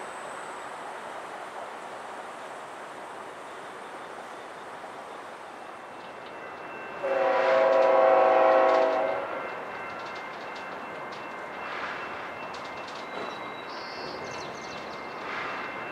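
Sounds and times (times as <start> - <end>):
locomotive air horn blast: 7.0 - 9.4.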